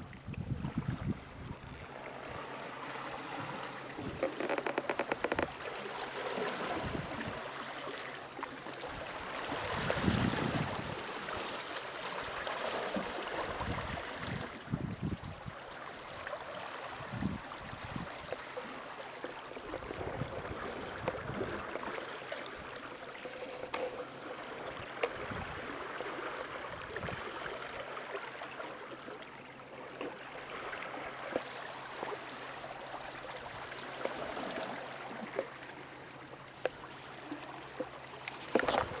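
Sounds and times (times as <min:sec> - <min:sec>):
sea water lapping: 0:00.0 - 0:39.0
small clicks and splashes: 0:03.4 - 0:08.9, 0:17.6 - 0:26.4, 0:27.0 - 0:39.0.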